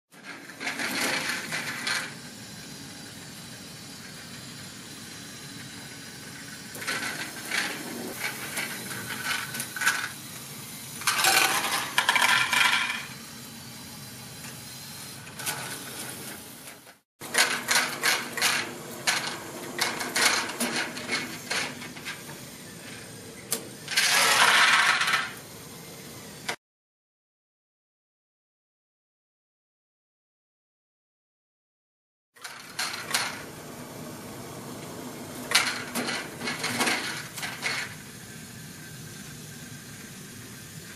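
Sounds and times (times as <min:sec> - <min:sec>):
motor and gear hum: 0:00.2 - 0:26.6, 0:32.4 - 0:40.9
plastic balls clattering: 0:11.0 - 0:13.1, 0:23.9 - 0:25.4.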